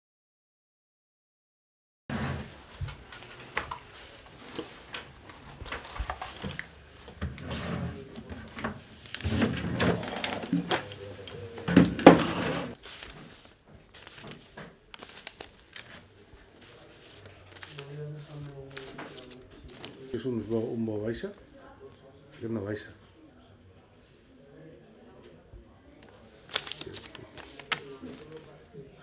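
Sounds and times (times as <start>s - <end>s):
rummaging through drawer: 7.2s - 12.8s.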